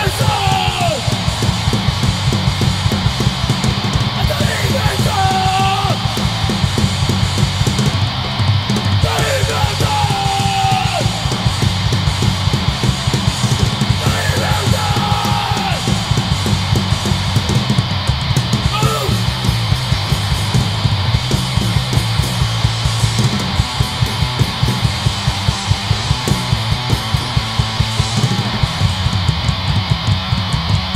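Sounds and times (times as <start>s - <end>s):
shouted vocals: 0.0s - 1.4s, 4.1s - 6.5s, 9.0s - 11.4s, 13.9s - 16.4s, 18.6s - 19.4s
electric guitars: 0.0s - 30.9s
fast drum beat: 0.0s - 30.9s.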